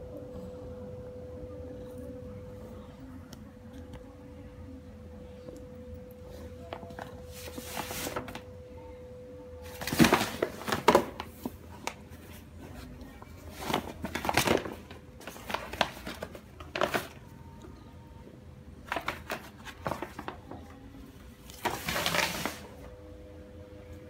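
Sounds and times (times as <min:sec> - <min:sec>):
paper envelope crinkling: 0:06.9 - 0:08.5, 0:09.6 - 0:12.4, 0:13.4 - 0:17.3, 0:18.8 - 0:20.6, 0:21.5 - 0:22.8.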